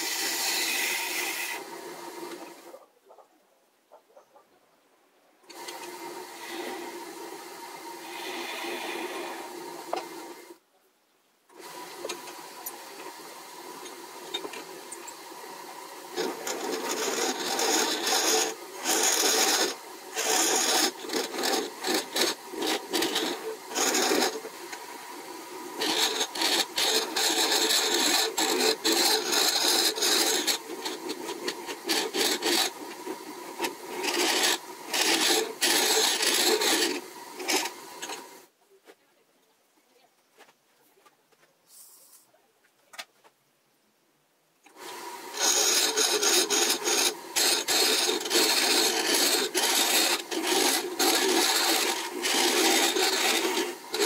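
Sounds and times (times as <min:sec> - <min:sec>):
hollowing tool scraping wood: 0:00.0 - 0:02.7, 0:07.9 - 0:10.1, 0:16.1 - 0:38.4, 0:44.7 - 0:54.0
wood lathe spinning: 0:00.0 - 0:02.8, 0:05.5 - 0:10.6, 0:11.5 - 0:38.5, 0:44.7 - 0:54.0.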